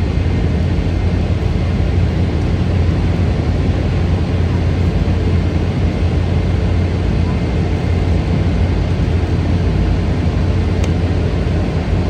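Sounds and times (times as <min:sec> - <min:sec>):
jet engines rushing: 0:00.0 - 0:12.0.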